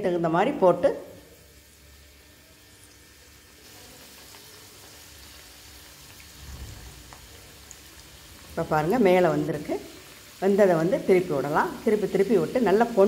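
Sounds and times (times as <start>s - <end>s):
dough sizzling in hot oil: 0.1s - 13.0s.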